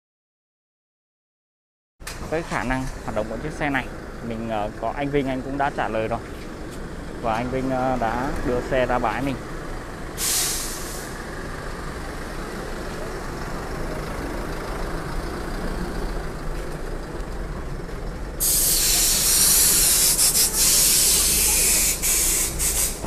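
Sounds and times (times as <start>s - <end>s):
diesel truck engine running: 2.0s - 23.0s
air brakes hissing: 10.2s - 11.3s, 18.4s - 23.0s.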